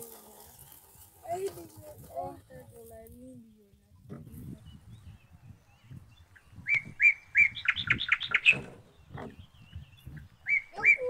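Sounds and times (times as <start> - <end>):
songbird singing: 1.3 - 11.0
faint low knocks: 8.4 - 10.4.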